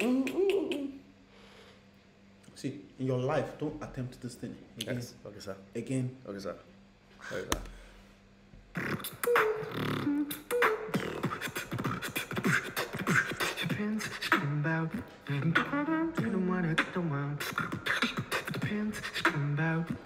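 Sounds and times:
beatbox percussive clicks: 0:00.0 - 0:00.9, 0:08.7 - 0:20.0
low vocal melody: 0:00.0 - 0:01.1, 0:08.8 - 0:20.0.

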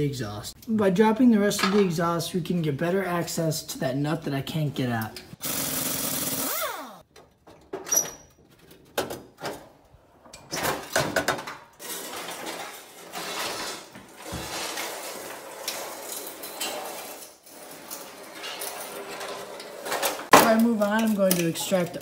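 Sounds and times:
pipe scraping on concrete: 0:11.9 - 0:19.6.

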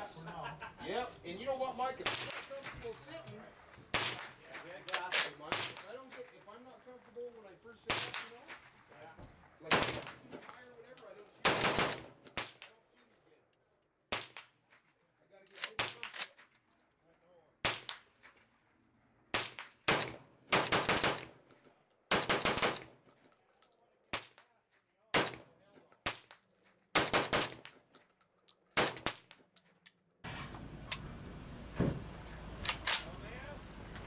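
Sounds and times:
shotgun shots: 0:02.0 - 0:02.7, 0:03.9 - 0:05.9, 0:07.9 - 0:08.6, 0:09.6 - 0:10.3, 0:11.4 - 0:12.6, 0:19.3 - 0:21.4, 0:22.1 - 0:22.9, 0:25.1 - 0:26.3, 0:27.0 - 0:27.7, 0:28.8 - 0:29.3
spent shells ejecting: 0:25.9 - 0:30.0.

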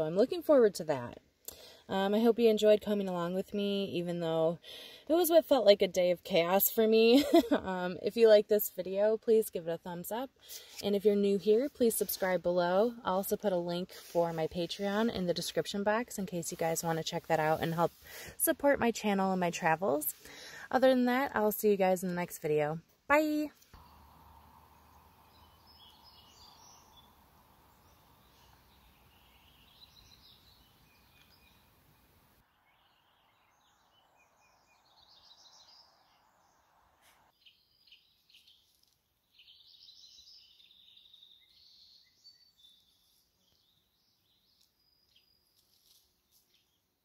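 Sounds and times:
small birds chirping: 0:23.3 - 0:47.0
soft hiss: 0:23.5 - 0:32.4.

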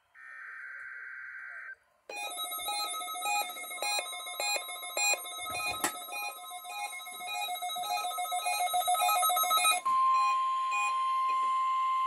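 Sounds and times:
steady high alarm tone: 0:02.1 - 0:11.5
two-tone electronic beeps: 0:02.1 - 0:12.0.

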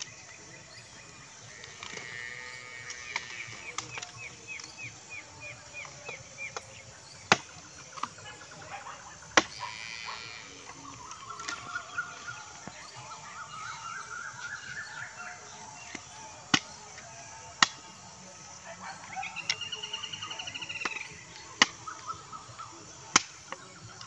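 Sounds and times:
birds chirping: 0:00.0 - 0:24.0
bamboo poles being chopped: 0:02.8 - 0:08.4, 0:09.3 - 0:09.7, 0:10.7 - 0:12.9, 0:15.8 - 0:18.0, 0:20.6 - 0:24.0.

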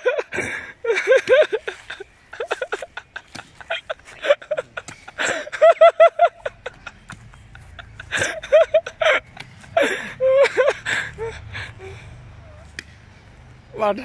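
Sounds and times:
person laughing: 0:00.0 - 0:12.0.

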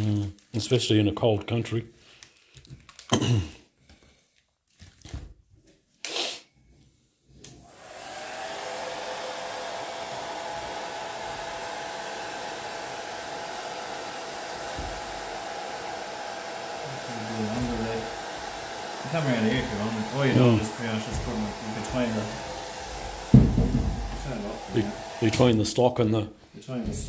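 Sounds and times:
hair dryer blowing: 0:07.5 - 0:27.0.

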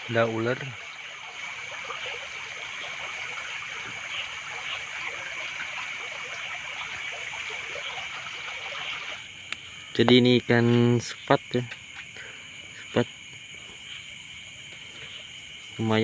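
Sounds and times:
river water splashing: 0:00.0 - 0:09.3
steady high-pitched hum: 0:00.0 - 0:16.0.

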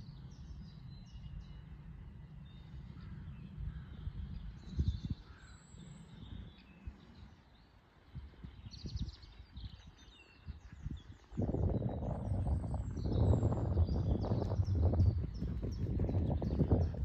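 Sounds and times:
birds chirping and singing: 0:08.4 - 0:17.0
steady low rumble: 0:10.5 - 0:17.0.

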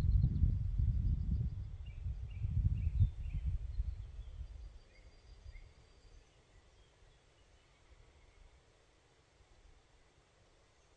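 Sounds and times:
wind rumbling on microphone: 0:00.0 - 0:05.8
faint bird chirps: 0:00.1 - 0:08.7.

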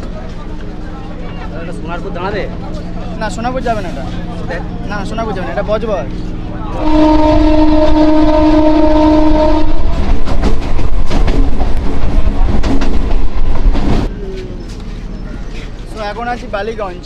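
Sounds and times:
train horn blast: 0:06.7 - 0:10.3
train wheels clattering over rail joints: 0:09.9 - 0:16.5.

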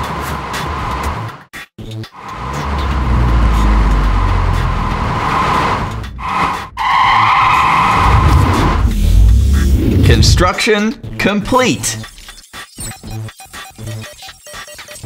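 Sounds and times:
cartoon car engine running: 0:02.2 - 0:10.4
tyres skidding: 0:02.2 - 0:10.4.

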